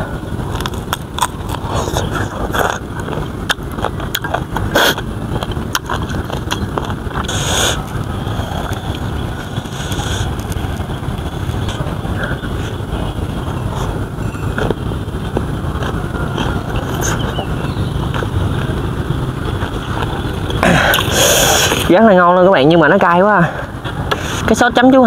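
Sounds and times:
steady low rumble: 0.0s - 25.0s
crunchy chewing: 0.4s - 21.9s.

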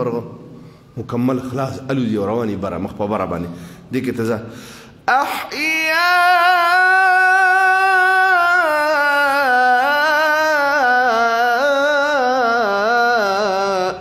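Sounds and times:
man reciting in long notes: 0.0s - 14.0s.

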